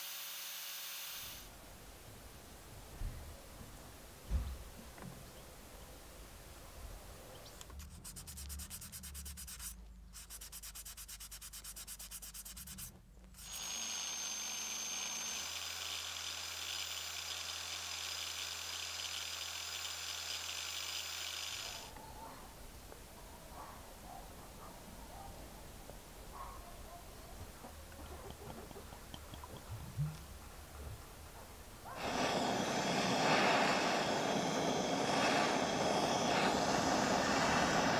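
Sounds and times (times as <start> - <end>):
angle grinder whining: 0.0 - 1.4, 13.4 - 21.9, 32.0 - 37.9
metal rubbing on sanding disc: 7.8 - 13.6.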